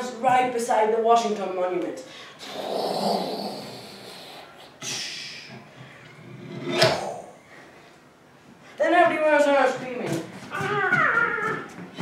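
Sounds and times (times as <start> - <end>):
mouth-made whooshing noises: 2.4 - 5.7, 6.6 - 7.5.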